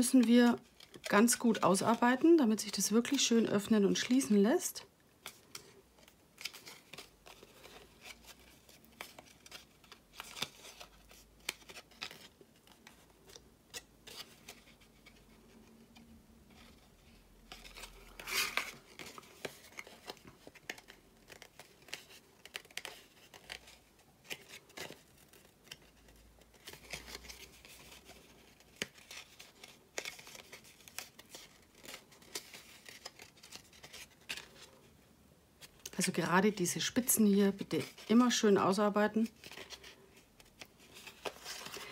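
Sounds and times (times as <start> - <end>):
paper rustle: 5.2 - 34.9, 39.1 - 41.9
stiff paper crinkling and clicking: 17.5 - 34.8.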